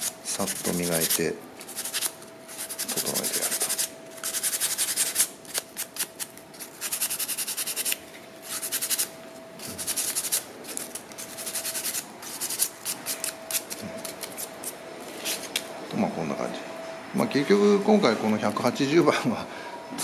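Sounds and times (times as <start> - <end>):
sandpaper rubbing on wood: 0.0 - 13.6.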